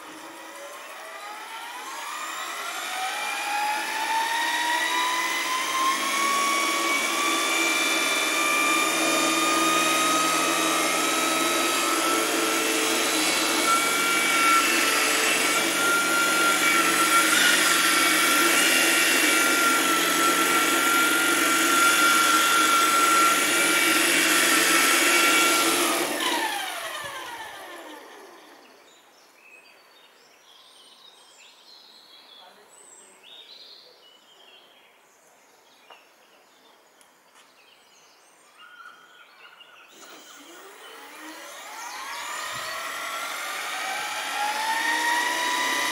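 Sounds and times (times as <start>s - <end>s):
electric motor whining: 0.0s - 28.7s, 39.9s - 45.9s.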